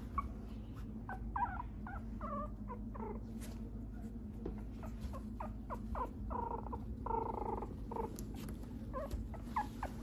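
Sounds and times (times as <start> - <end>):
puppy whining and squeaking: 0.0 - 10.0.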